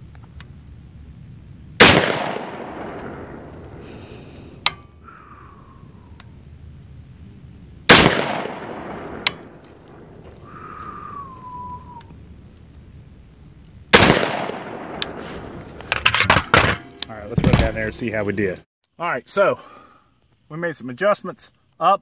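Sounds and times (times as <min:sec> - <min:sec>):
rifle shots echoing: 0:01.8 - 0:03.9, 0:07.9 - 0:10.3, 0:13.9 - 0:15.7
sharp cracks: 0:01.8 - 0:06.3, 0:07.9 - 0:12.8, 0:13.9 - 0:16.7.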